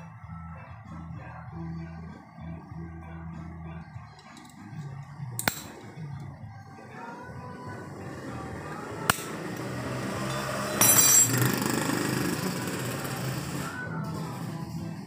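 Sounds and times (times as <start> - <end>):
metal tools clinking and clattering: 10.3 - 11.6.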